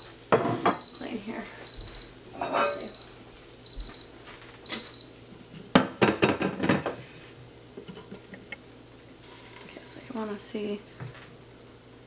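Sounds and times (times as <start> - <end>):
kitchenware clattering: 0.3 - 0.9, 2.4 - 3.0, 5.7 - 7.0.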